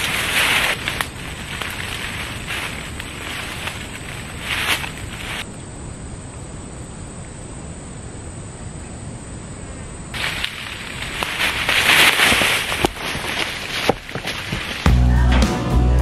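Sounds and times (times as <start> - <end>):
rustling through undergrowth: 0.0 - 5.5, 10.1 - 15.4
outdoor background: 0.0 - 16.0.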